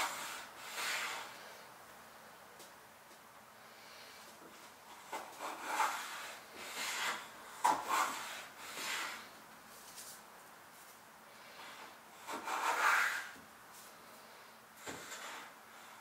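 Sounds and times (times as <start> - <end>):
hand plane shaving wood: 5.1 - 9.3, 12.2 - 13.3.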